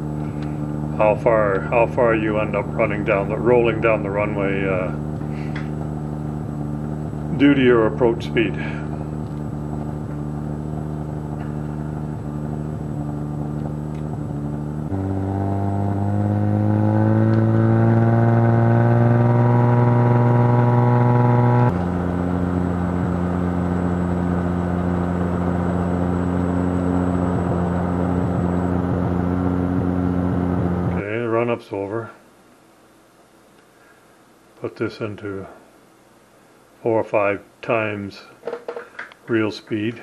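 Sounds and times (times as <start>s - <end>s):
aircraft piston engine and propeller: 2.5s - 15.9s, 21.7s - 31.0s.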